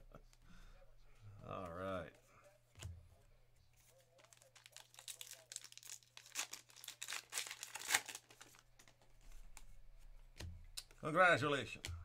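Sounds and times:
wrapper tearing and crinkling: 4.2s - 9.0s.

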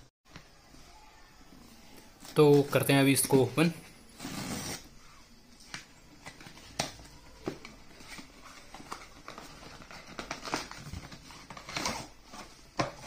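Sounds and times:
cardboard sleeve sliding: 4.2s - 4.9s
card and plastic rustling: 5.6s - 13.0s.

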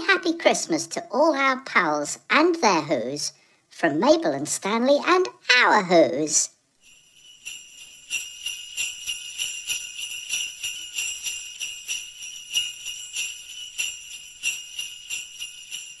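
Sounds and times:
sleigh bells jingling: 6.8s - 16.0s.

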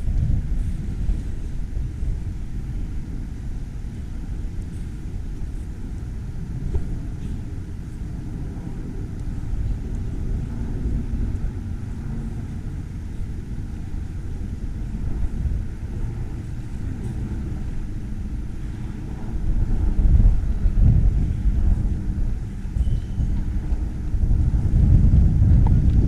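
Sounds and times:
outdoor low rumble: 0.0s - 26.0s.

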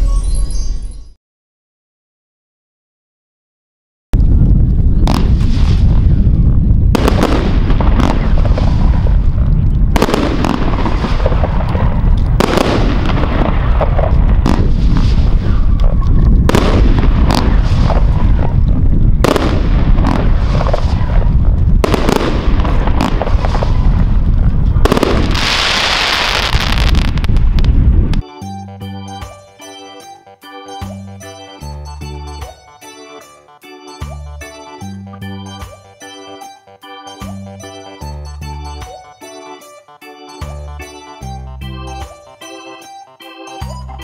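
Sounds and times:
hissing crackle of fireworks: 4.8s - 28.2s.

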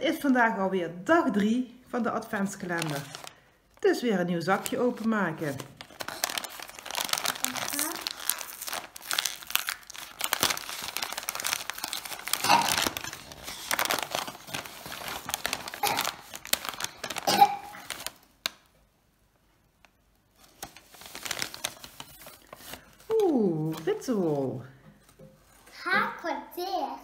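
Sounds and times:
paper bag crumpling and tearing: 2.5s - 3.4s, 4.4s - 18.4s, 20.4s - 24.3s.

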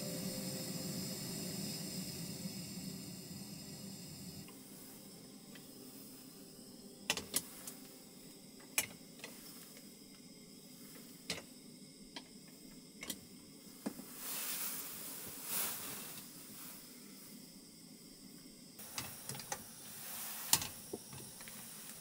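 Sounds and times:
soft sizzling hiss: 0.0s - 22.0s
cooking gear clicks and taps: 13.0s - 13.2s, 18.8s - 19.7s, 20.5s - 22.0s.

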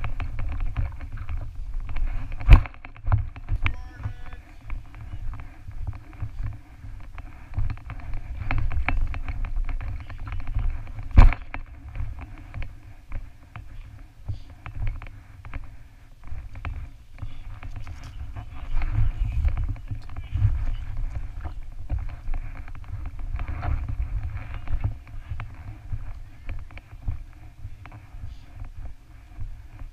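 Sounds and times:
knocks and scuffs: 0.0s - 29.9s
wind rumble on microphone: 0.0s - 29.9s.

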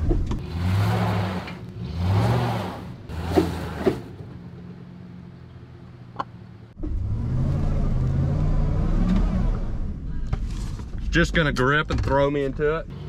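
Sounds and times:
pickup truck engine revving: 0.4s - 4.2s.

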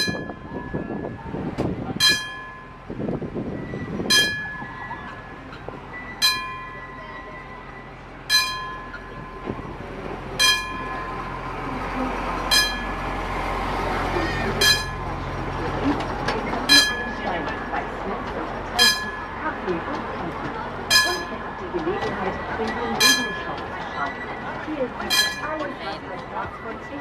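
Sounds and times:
level crossing bell ringing: 0.0s - 1.2s, 2.0s - 2.9s, 4.1s - 9.6s, 10.4s - 11.4s, 12.5s - 13.0s, 14.6s - 15.2s, 16.7s - 17.5s, 18.8s - 19.6s, 20.9s - 27.0s
miniature train rumble: 0.0s - 27.0s.

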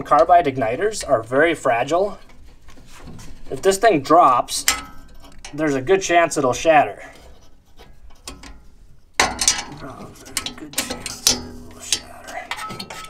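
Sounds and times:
metal clicks and clinks: 9.2s - 13.0s
sharp metal clack: 9.2s - 13.0s.

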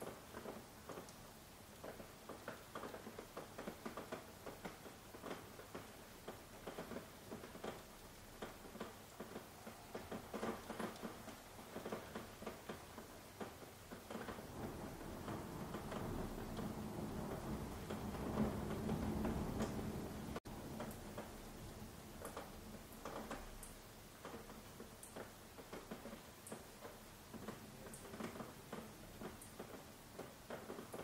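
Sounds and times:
faint hiss: 0.0s - 31.0s
raindrops pattering: 0.0s - 31.0s
low steady rush: 14.5s - 20.7s.

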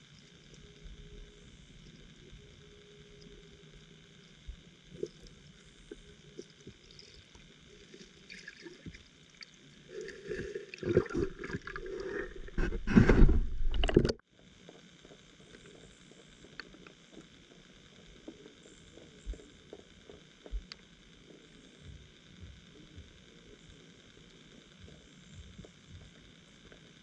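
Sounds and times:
faint underwater ticks and clicks: 0.0s - 27.0s
air bubbles rushing underwater: 9.9s - 14.1s.

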